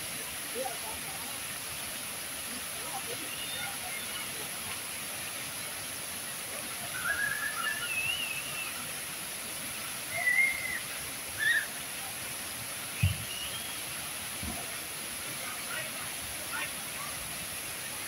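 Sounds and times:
fountain water pouring into pool: 0.0 - 18.0
low thump: 13.0 - 13.2.

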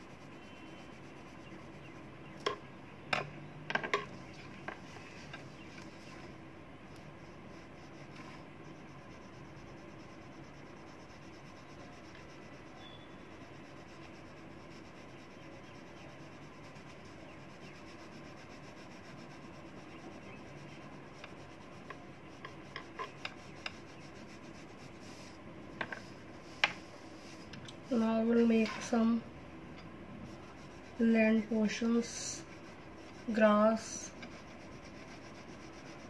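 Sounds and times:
crayon scribbling on paper: 0.0 - 2.1, 7.3 - 25.4, 30.2 - 36.0.

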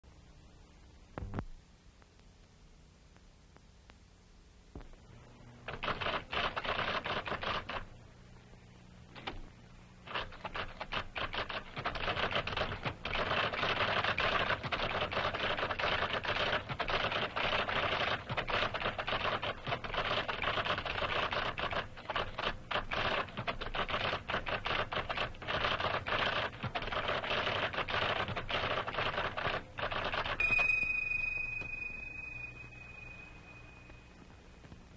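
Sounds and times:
electric typewriter typing rapidly: 5.7 - 7.9, 10.1 - 30.5
bell-like ringing tone: 30.4 - 34.5.

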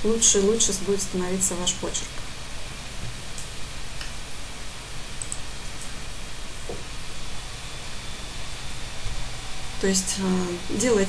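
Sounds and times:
microphone hiss: 0.0 - 11.0
faint clicks: 5.2 - 5.9.

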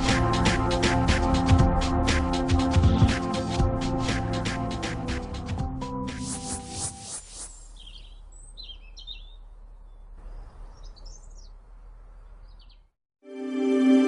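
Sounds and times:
background music: 0.0 - 6.9, 13.2 - 14.0
faint outdoor ambience: 7.3 - 12.9
small birds chirping: 7.4 - 13.0.

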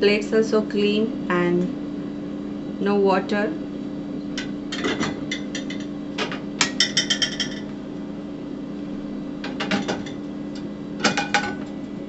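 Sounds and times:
steady low hum: 0.0 - 12.0
plates clinking: 6.6 - 7.7.

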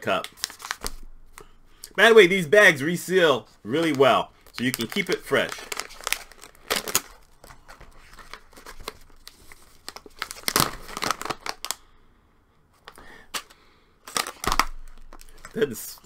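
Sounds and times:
plastic bag crinkling and tearing: 0.1 - 1.0, 3.7 - 11.8, 12.9 - 15.8.

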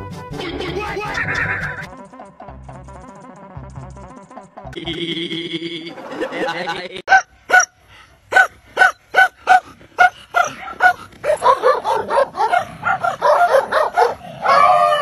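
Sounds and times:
dog barking and yipping: 7.1 - 15.0.

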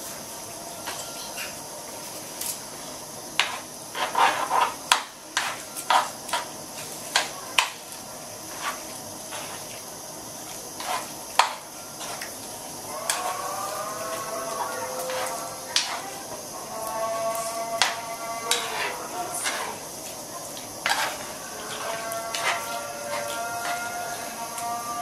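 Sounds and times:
sauce hissing in a pan: 1.8 - 25.0
spoon scraping a frying pan: 10.8 - 12.2, 13.1 - 13.4, 14.2 - 16.2, 17.8 - 19.8, 20.8 - 24.3.

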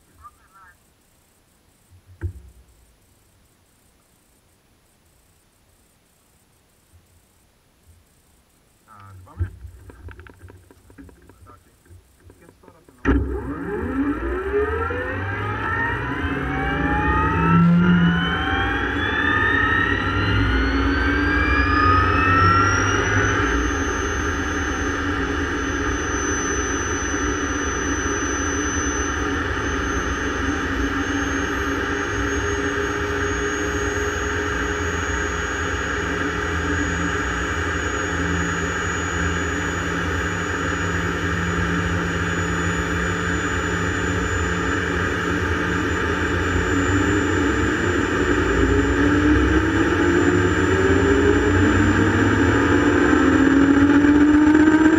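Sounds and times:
helicopter turbine whine: 8.9 - 54.9
helicopter rotor noise: 13.4 - 54.9.

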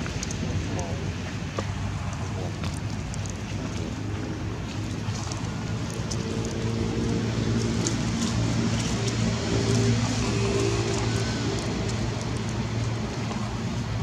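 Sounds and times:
motor engine humming: 0.0 - 14.0
noisy background: 0.0 - 14.0.

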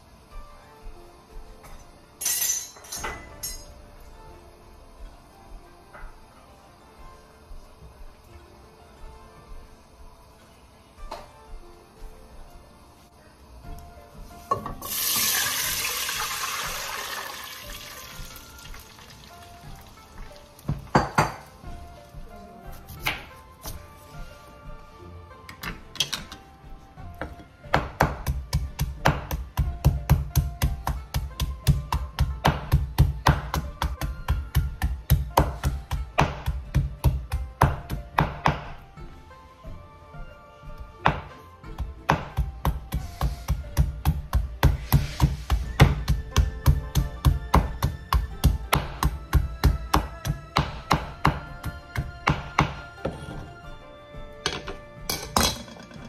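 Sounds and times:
water pouring into metal pot: 14.8 - 20.0
knife chopping on wooden board: 27.2 - 38.8, 41.0 - 53.4.

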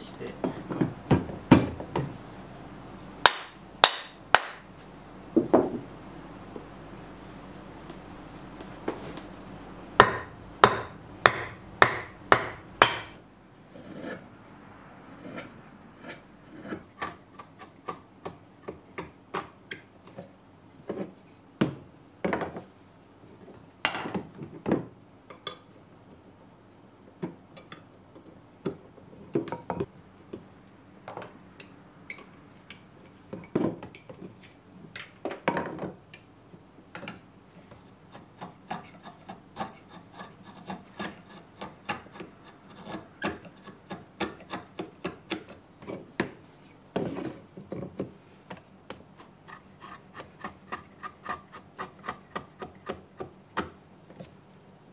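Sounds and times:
sharp wooden knocks: 3.2 - 4.6, 10.0 - 13.2
file scraping wood: 10.0 - 14.3, 15.1 - 18.0, 37.8 - 46.1, 49.1 - 53.2.

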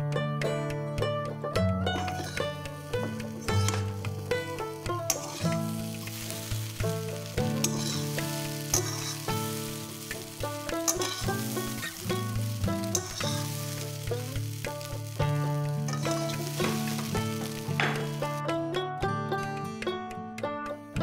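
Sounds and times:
instrumental background music: 0.0 - 21.0
light sizzle from pan: 1.6 - 18.5
spatula tapping pan side: 1.8 - 18.4
metal spatula scraping a pan: 2.0 - 15.2, 15.9 - 18.2.

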